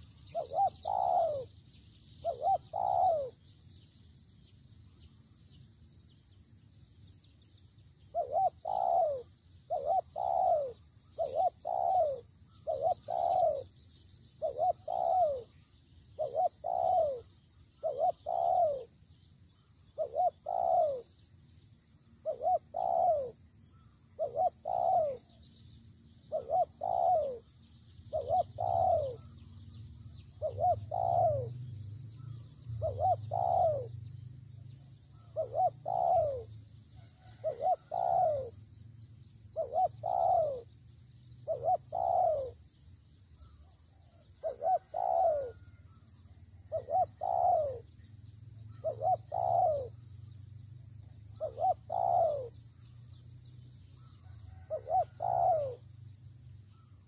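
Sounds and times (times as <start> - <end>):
dove cooing: 0.0 - 1.5, 2.1 - 3.5, 8.1 - 13.8, 14.4 - 19.0, 19.9 - 21.2, 22.2 - 25.5, 26.2 - 34.0, 34.8 - 38.6, 39.5 - 40.8, 41.4 - 42.8, 43.4 - 55.9.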